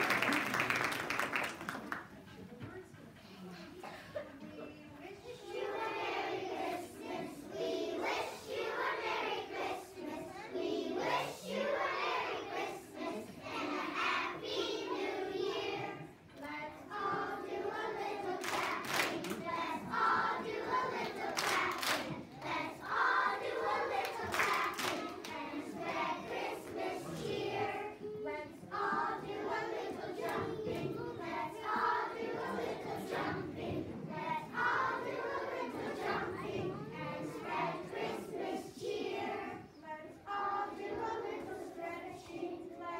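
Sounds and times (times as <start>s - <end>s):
sharp hand claps: 0.0s - 2.0s, 18.4s - 19.4s, 24.3s - 25.4s
children's choir singing: 5.0s - 42.9s.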